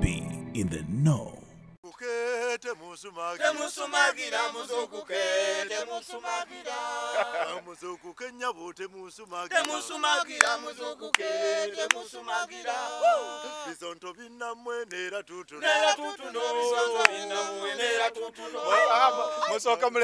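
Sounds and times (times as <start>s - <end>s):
men singing a cappella: 1.9s - 20.0s.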